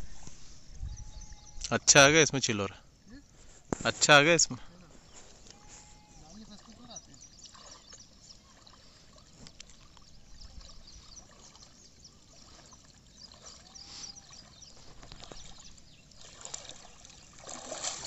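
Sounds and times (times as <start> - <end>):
small water splashes: 4.8 - 18.0
water dripping from net: 15.0 - 18.0.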